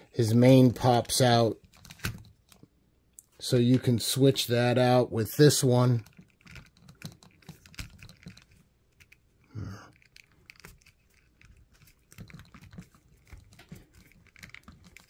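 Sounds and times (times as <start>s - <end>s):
small plastic clicks and rubbing: 1.6s - 3.3s, 5.9s - 15.0s.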